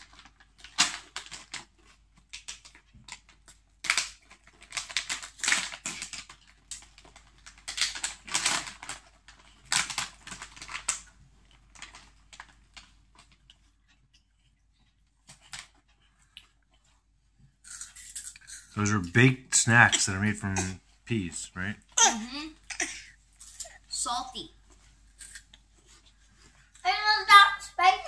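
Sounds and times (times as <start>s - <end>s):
crinkling plastic snack bag: 0.0s - 13.7s.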